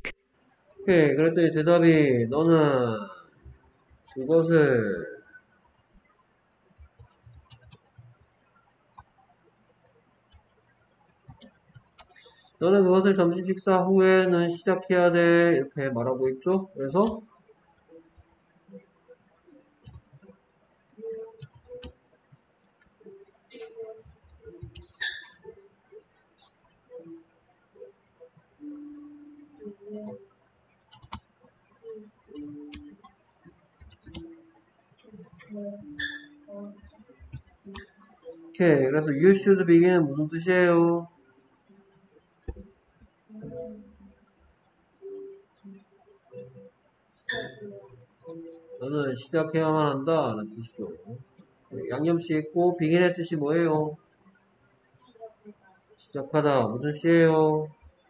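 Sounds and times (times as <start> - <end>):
typing on computer keyboard: 2.4 - 6.1, 6.8 - 8.3, 9.8 - 12.4, 19.8 - 20.2, 21.4 - 22.2, 24.0 - 25.3, 29.9 - 31.3, 32.2 - 33.1, 33.8 - 34.3, 35.4 - 38.0.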